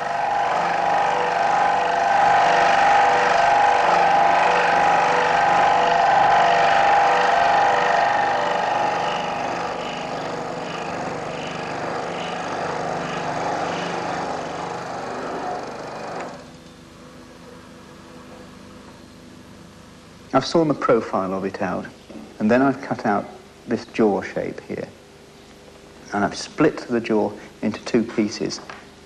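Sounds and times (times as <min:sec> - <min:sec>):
scroll saw cutting wood: 0:00.0 - 0:16.5.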